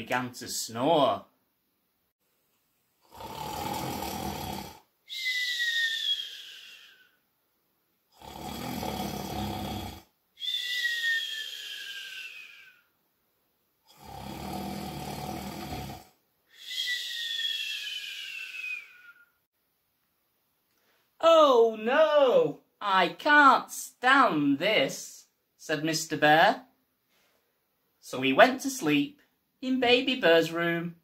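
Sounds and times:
man snoring: 3.0s - 4.9s, 8.1s - 10.1s, 13.9s - 16.2s
falling whistle: 5.0s - 7.2s, 10.4s - 12.9s, 16.5s - 19.4s.

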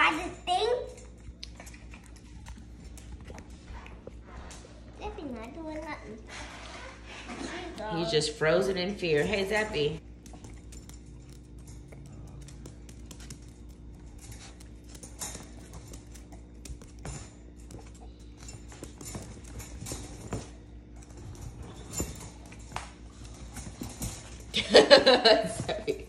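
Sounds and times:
faint steady hum: 0.0s - 26.0s
claws clicking and tapping: 10.0s - 21.1s.

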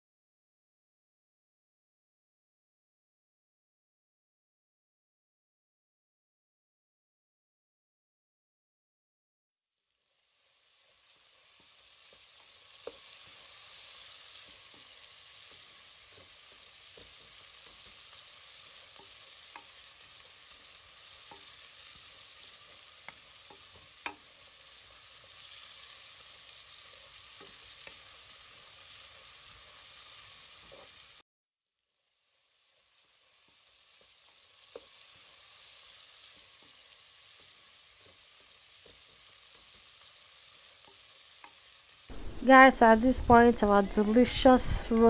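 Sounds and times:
chicken sizzling on a grill: 9.7s - 45.0s.

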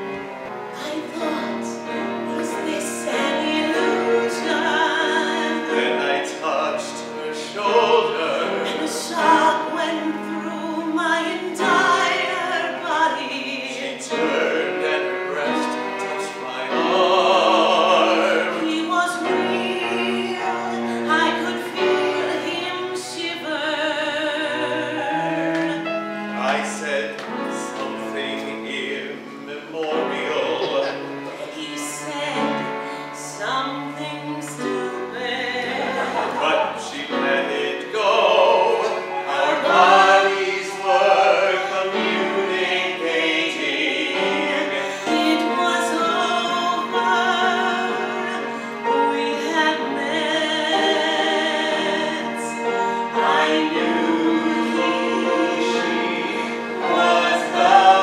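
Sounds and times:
instrumental accompaniment: 0.0s - 58.0s
woman singing: 0.8s - 7.6s, 8.6s - 15.0s, 18.2s - 25.9s, 31.4s - 37.7s, 43.5s - 52.6s
man singing: 26.4s - 31.2s.

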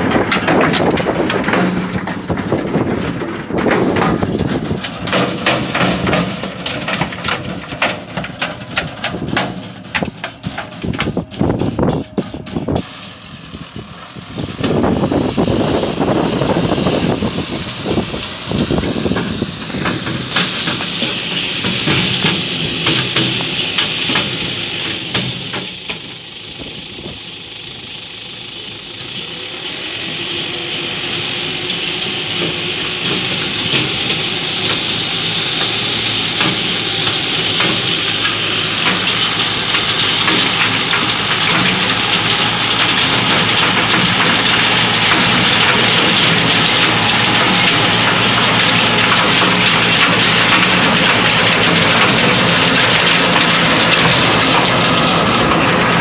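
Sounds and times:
stones clattering in machine: 0.0s - 12.8s, 35.6s - 56.0s
tractor engine running: 0.0s - 56.0s.

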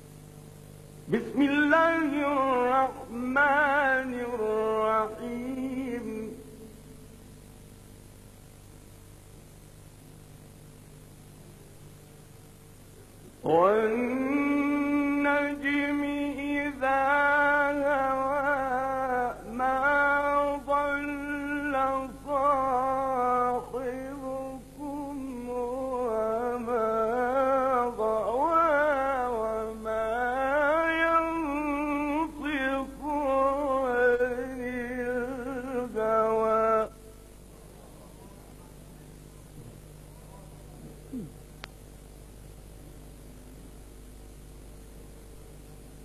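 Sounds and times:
man reciting melodically: 1.1s - 6.4s, 13.4s - 37.0s.

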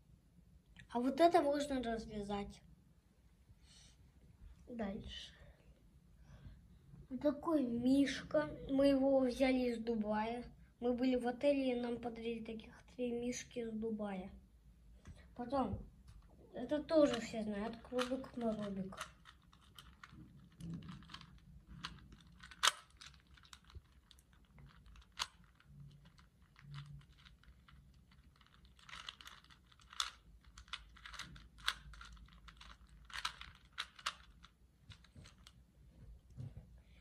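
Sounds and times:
puzzle cube clicking: 17.1s - 35.6s.

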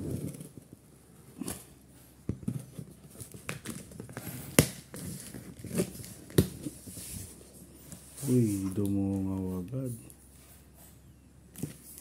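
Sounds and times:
tape and cardboard tearing: 3.1s - 6.9s.

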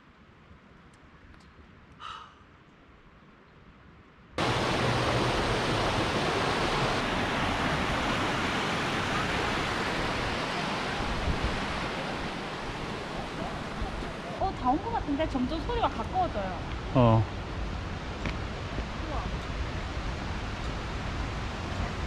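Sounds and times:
creek water rushing: 4.4s - 22.0s.

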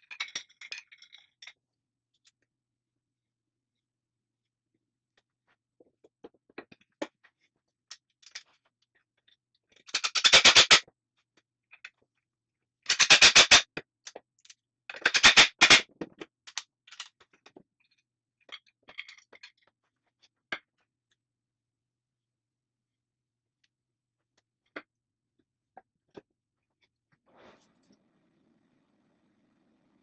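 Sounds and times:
clicks and knocks from handling parts: 0.0s - 2.5s, 5.2s - 21.2s.

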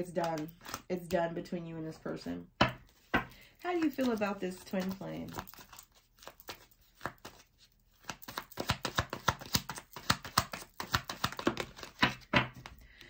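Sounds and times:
cards being shuffled: 2.9s - 12.8s.

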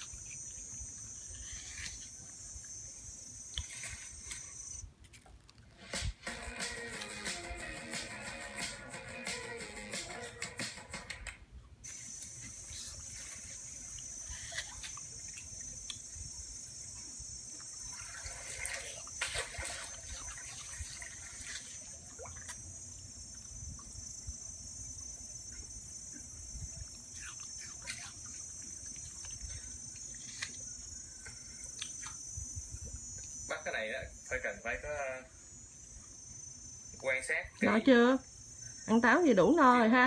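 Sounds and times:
dog chewing apple: 0.0s - 2.4s, 11.8s - 16.1s, 26.8s - 30.7s
high-pitched hiss: 0.0s - 4.9s, 5.8s - 11.1s, 11.8s - 40.0s.

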